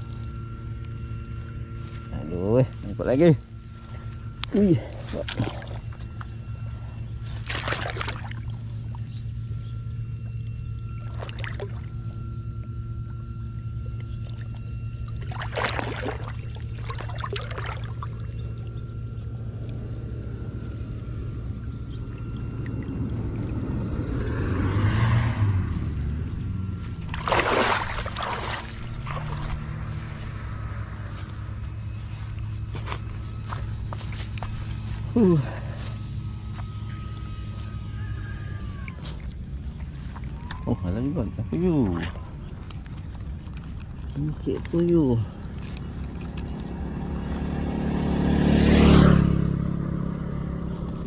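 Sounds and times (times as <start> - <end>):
steady low hum: 0.0 - 51.0
water pouring off a net: 15.2 - 18.0, 27.1 - 29.4
water pouring off net: 27.1 - 29.4.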